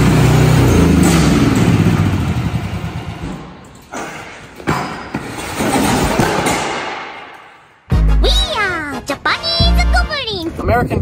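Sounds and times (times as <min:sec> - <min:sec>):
excavator engine running: 0:00.0 - 0:03.6
metal clatter: 0:03.1 - 0:07.6.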